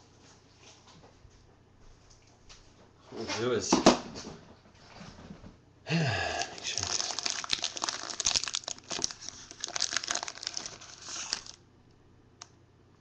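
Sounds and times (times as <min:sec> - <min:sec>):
foil wrapper tearing and crinkling: 0:06.4 - 0:11.6.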